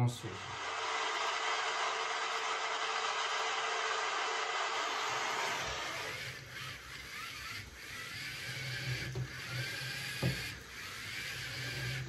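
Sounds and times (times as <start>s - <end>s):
small electric motors whirring: 0.0s - 12.0s.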